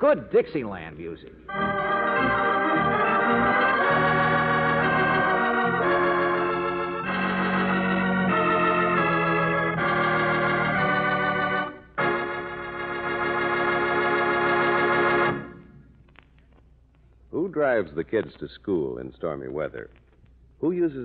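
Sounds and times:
organ playing held chords: 1.2 - 15.9.

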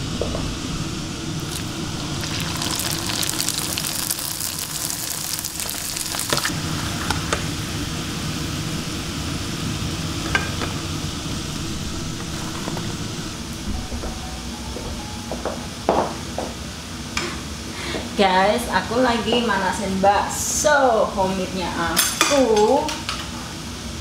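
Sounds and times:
kitchen extractor hood hum: 0.0 - 24.0
food sizzling in hot oil: 1.4 - 11.2.

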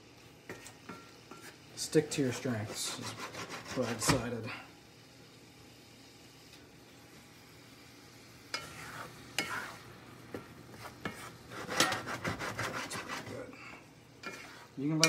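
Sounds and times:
faint sizzle in a pan: 0.0 - 15.0
wooden spatula scraping a skillet: 0.5 - 4.3, 8.5 - 15.0.

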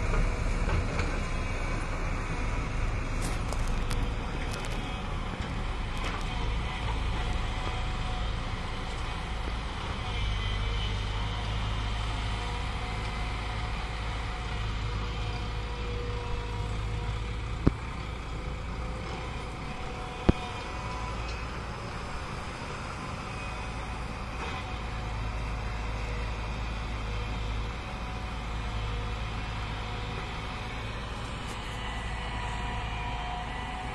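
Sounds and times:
diesel engines droning: 0.0 - 33.9.

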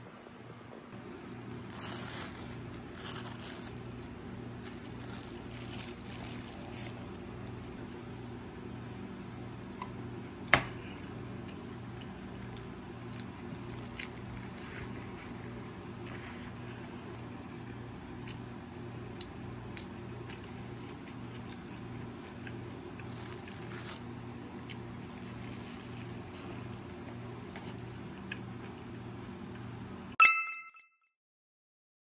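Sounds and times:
electric fan hum: 0.0 - 30.2
wrapper crinkling: 1.0 - 7.8, 13.1 - 15.4, 23.0 - 28.0
chewing sandwich: 11.0 - 29.7.

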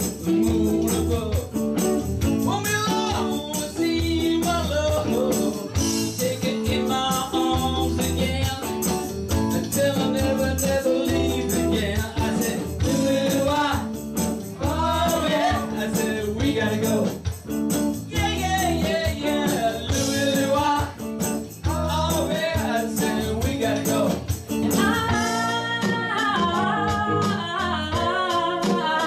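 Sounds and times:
person singing: 0.0 - 1.6, 2.5 - 13.9, 21.6 - 29.0
live band playing: 0.0 - 29.0.

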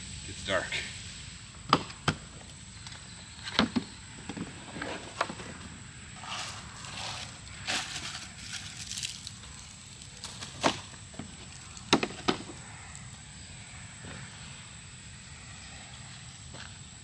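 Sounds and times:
insects humming: 0.0 - 17.0
firewood cracking: 6.2 - 13.0.

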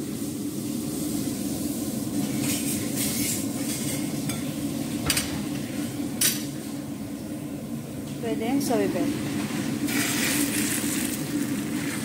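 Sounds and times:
steady low hum: 0.0 - 12.0
kitchen utensil scraping: 2.3 - 4.5.

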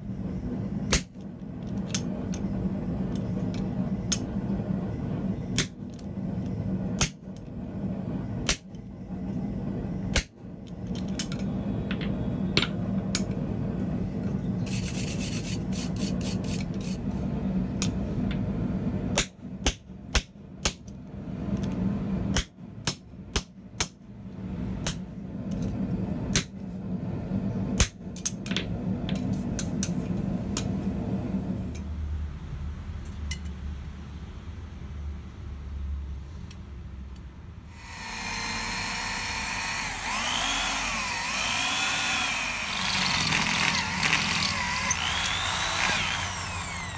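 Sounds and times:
low hum: 37.7 - 46.9.

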